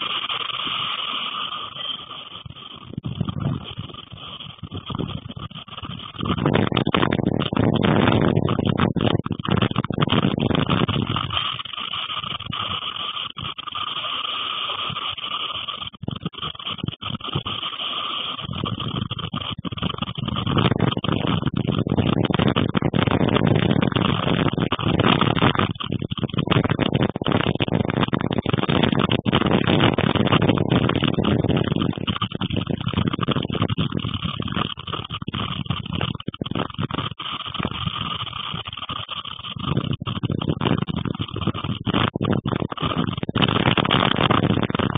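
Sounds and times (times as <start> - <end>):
strong storm wind gusting: 0.0 - 44.9.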